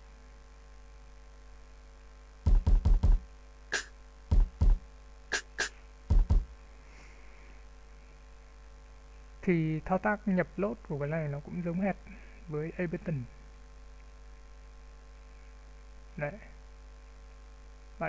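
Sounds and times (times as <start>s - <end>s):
deep drum machine thuds: 2.4s - 6.6s
sharp bright drum hits: 2.5s - 3.2s, 3.8s - 6.4s.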